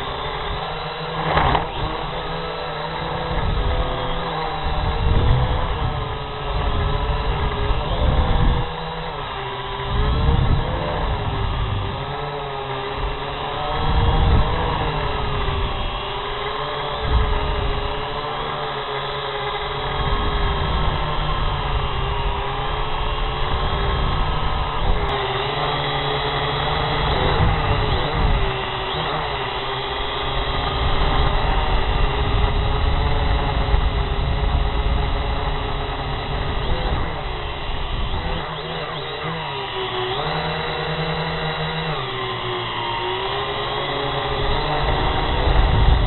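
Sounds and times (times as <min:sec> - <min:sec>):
drone propellers whining: 0:00.0 - 0:46.0.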